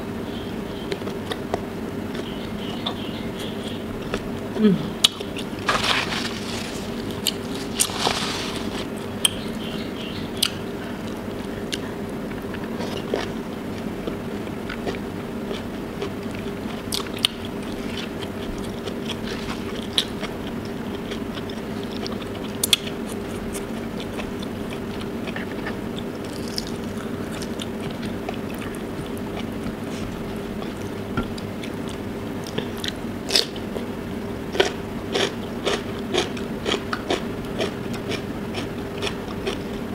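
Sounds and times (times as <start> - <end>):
steady low hum: 0.0 - 39.9
crunchy bites: 5.1 - 8.9, 26.2 - 28.0
chewing with wet mouth clicks: 14.0 - 29.8, 30.6 - 33.9, 34.5 - 39.8.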